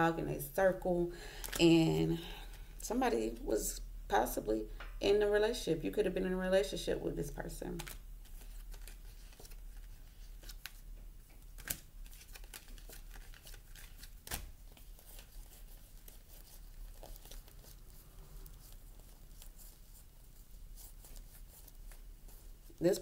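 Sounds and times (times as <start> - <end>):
cards being shuffled: 7.8 - 10.8, 11.4 - 17.8.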